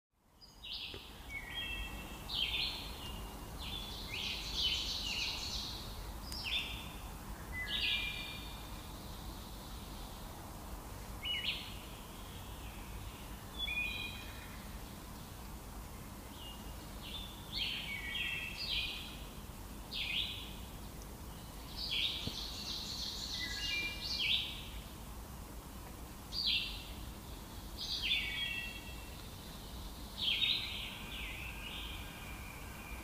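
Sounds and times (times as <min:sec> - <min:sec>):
low steady background hiss: 0:00.2 - 0:33.0
songbirds chirping: 0:00.2 - 0:33.0.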